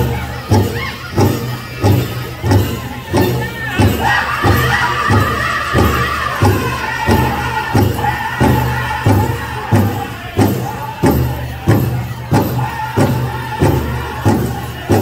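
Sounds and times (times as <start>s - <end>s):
big drum steady beat: 0.0s - 15.0s
people singing: 3.5s - 15.0s.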